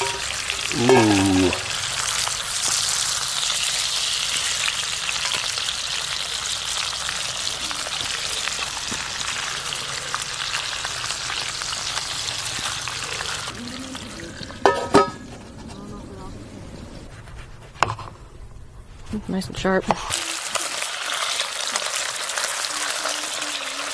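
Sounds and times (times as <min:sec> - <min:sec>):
fish sizzling in a frying pan: 0:00.0 - 0:15.1, 0:20.1 - 0:23.9.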